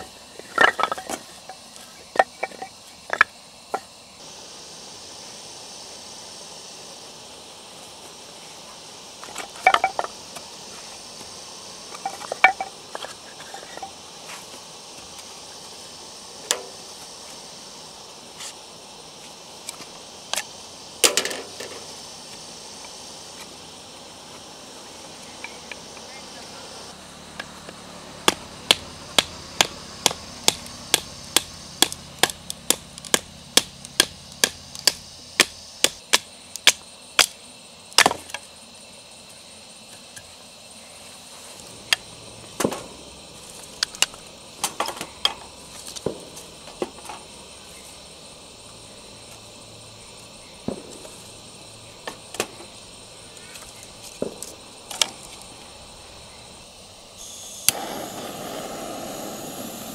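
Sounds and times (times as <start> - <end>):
wood sticks clattering in metal pit: 0.4 - 3.2, 21.0 - 21.8
splitting firewood strikes: 28.2 - 37.4, 38.0 - 38.4.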